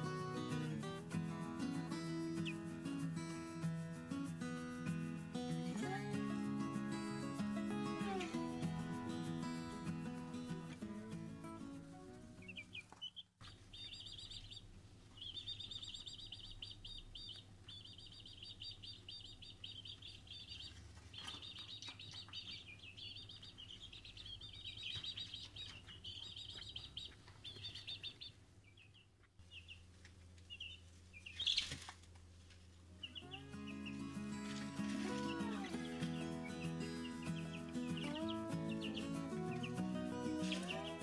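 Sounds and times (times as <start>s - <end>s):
chicks chirping: 0.0s - 3.1s, 12.3s - 32.0s, 33.0s - 41.0s.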